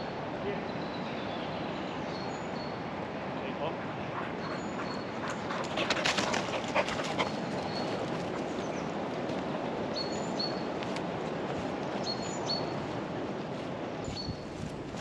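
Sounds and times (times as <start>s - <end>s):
steady outdoor rush: 0.0s - 15.0s
dog panting: 3.8s - 9.0s.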